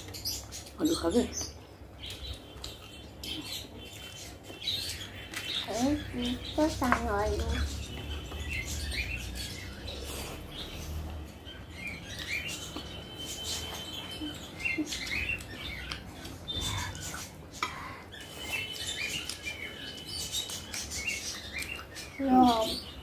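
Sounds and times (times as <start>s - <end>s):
person chewing food: 13.6s - 19.8s.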